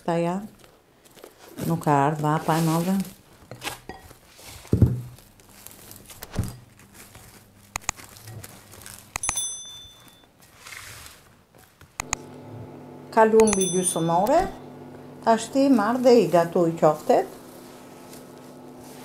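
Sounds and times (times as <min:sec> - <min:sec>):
cling film crinkling: 0:04.3 - 0:09.2
ringing clink: 0:09.2 - 0:10.3, 0:13.4 - 0:14.5.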